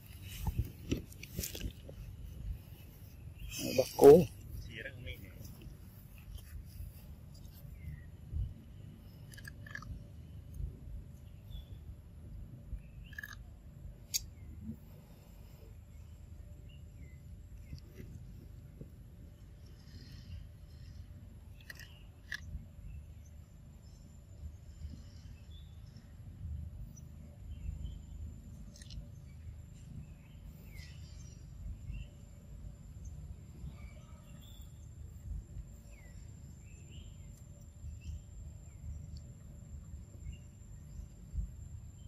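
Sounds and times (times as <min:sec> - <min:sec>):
low outdoor rumble: 0:00.0 - 0:42.0
bird chirps: 0:02.7 - 0:05.6
monkey chewing corn cob: 0:09.3 - 0:09.9.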